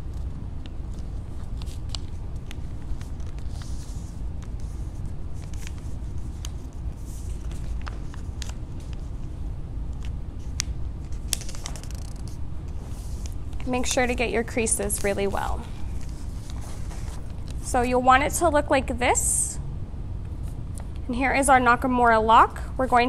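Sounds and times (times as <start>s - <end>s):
steady low hum: 0.0s - 23.0s
paper folding taps and rustles: 0.1s - 9.2s, 9.9s - 13.7s.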